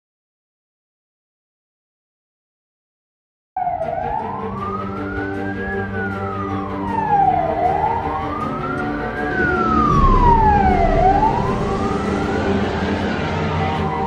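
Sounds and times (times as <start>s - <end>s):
fire engine siren wailing: 3.6s - 14.0s
truck engine running: 4.2s - 14.0s.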